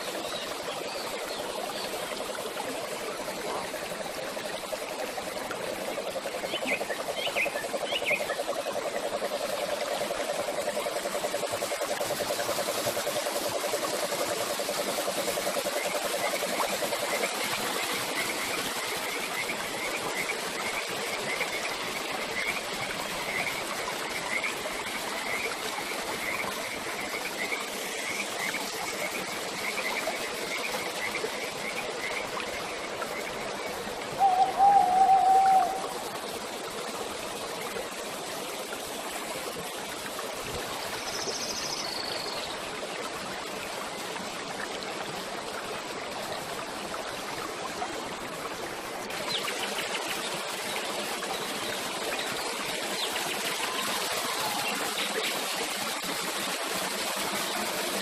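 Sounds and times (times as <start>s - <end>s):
fountain water splashing into pool: 0.0s - 58.0s
warbling whistled call: 6.2s - 17.3s, 34.1s - 36.1s.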